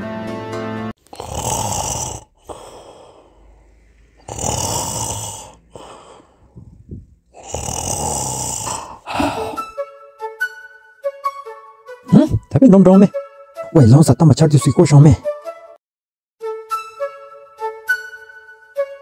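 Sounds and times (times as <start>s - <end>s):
music: 0.0s - 1.0s, 9.1s - 15.8s, 16.4s - 19.0s
person snoring: 1.0s - 9.7s.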